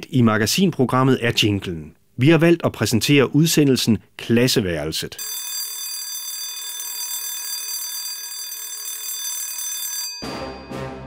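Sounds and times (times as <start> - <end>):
electric bell ringing: 5.2 - 11.0.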